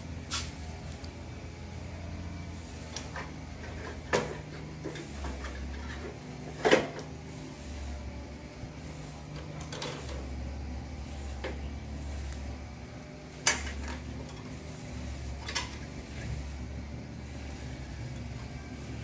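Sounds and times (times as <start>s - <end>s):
steady low hum: 7.3s - 19.0s.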